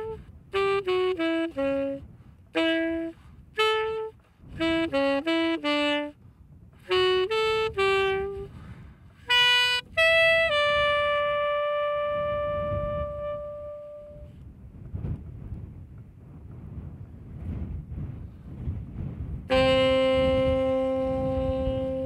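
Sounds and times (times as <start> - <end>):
solo saxophone melody: 0.0 - 14.4, 19.4 - 22.0
wind rumble on microphone: 0.0 - 22.0.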